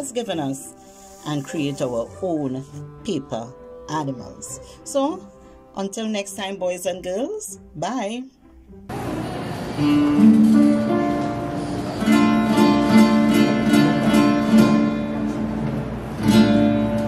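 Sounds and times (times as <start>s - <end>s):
strummed guitar: 8.9s - 17.0s.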